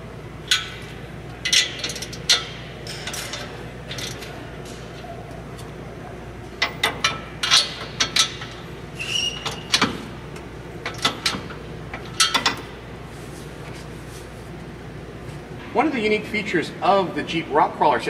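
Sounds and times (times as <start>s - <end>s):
short squeak: 9.0s - 9.7s.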